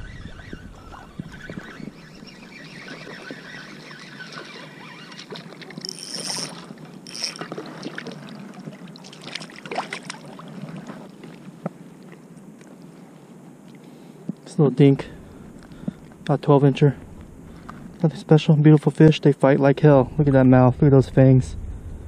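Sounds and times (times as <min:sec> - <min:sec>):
water splashing and lapping: 0:00.0 - 0:13.0.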